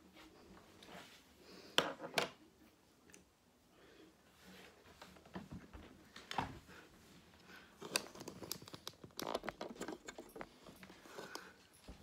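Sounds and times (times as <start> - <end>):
person handling things: 7.5 - 12.0.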